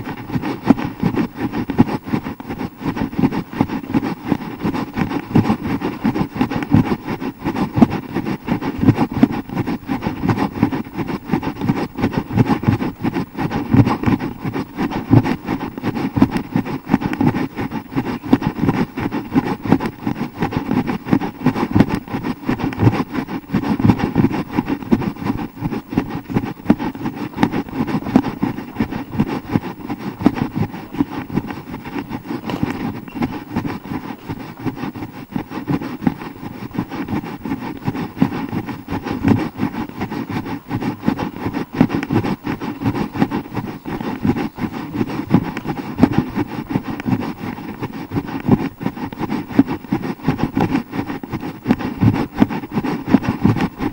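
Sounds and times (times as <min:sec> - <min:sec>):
running footfalls: 0:00.0 - 0:53.9.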